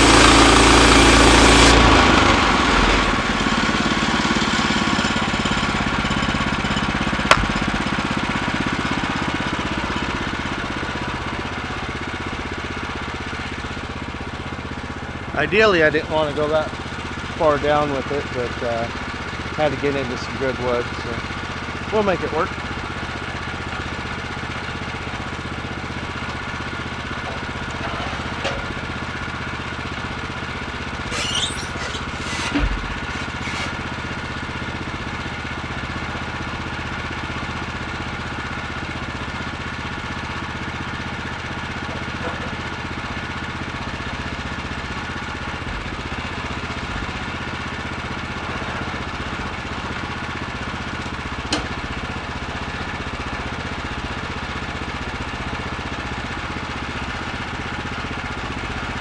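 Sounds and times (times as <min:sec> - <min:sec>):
gas engine idling: 0:00.0 - 0:59.0
short knocks: 0:07.3 - 0:07.8.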